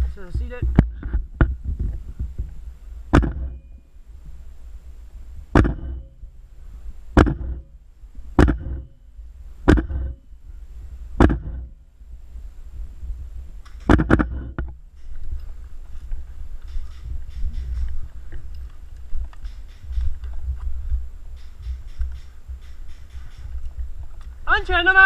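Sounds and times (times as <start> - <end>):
wind rumble on microphone: 0.0 - 25.0
airsoft rifle shots: 3.1 - 3.6, 5.5 - 6.2, 7.2 - 7.7, 8.4 - 8.9, 9.6 - 10.2, 11.2 - 11.8, 13.8 - 14.5.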